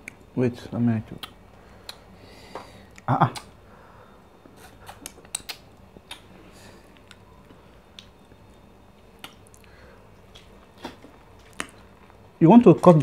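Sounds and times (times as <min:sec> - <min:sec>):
wet eating clicks and smacks: 0:01.1 - 0:02.1, 0:02.9 - 0:03.6, 0:04.6 - 0:06.3, 0:07.9 - 0:12.2
fingers squishing slimy food: 0:04.6 - 0:06.3, 0:06.9 - 0:12.0
chewing: 0:09.2 - 0:12.2.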